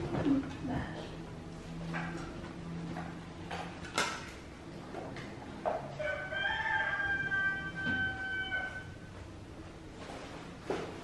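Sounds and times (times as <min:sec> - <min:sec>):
rooster crowing: 0:05.9 - 0:09.0.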